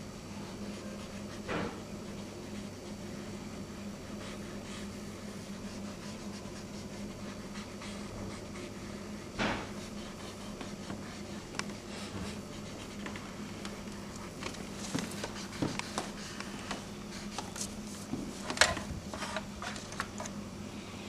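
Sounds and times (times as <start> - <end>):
low room hum: 0.0 - 21.0
pencil scratching on paper: 0.4 - 13.2.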